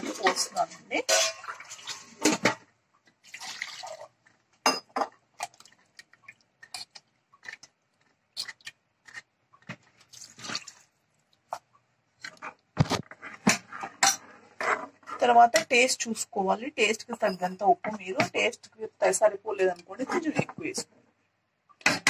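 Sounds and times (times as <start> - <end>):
ladle scraping and sloshing: 0.0 - 2.5, 3.1 - 4.4, 5.3 - 11.6.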